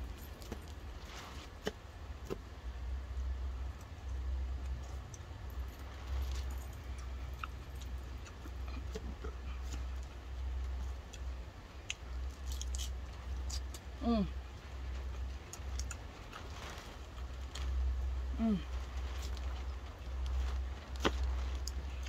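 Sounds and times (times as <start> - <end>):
person chewing salad: 6.2 - 22.0.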